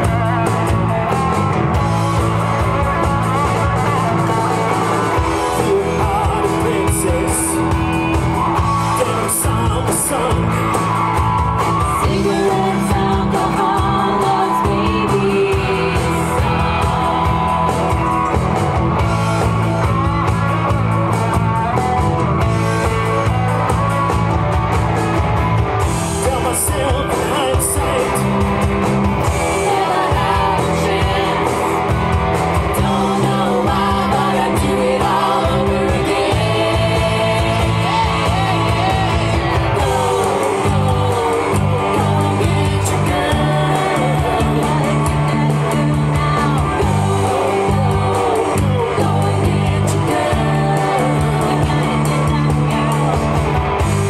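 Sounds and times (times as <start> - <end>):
live rock band playing: 0.0 - 54.0
people singing together: 5.0 - 10.7, 11.8 - 18.1, 29.2 - 53.8.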